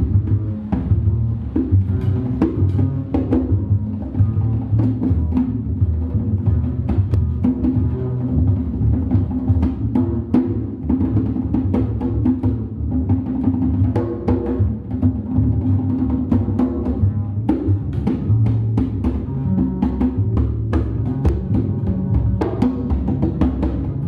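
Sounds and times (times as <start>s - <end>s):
double bass notes: 0.0s - 24.0s
drum strikes: 16.2s - 24.0s.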